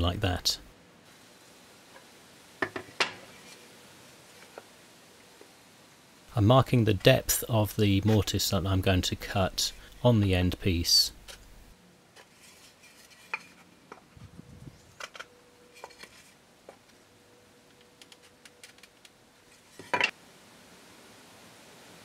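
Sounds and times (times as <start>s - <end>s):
tools knocking on wooden bench: 2.6s - 3.2s.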